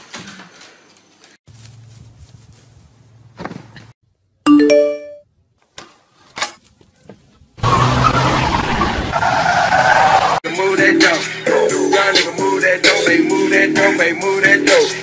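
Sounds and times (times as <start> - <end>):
loud music: 10.4 - 15.0.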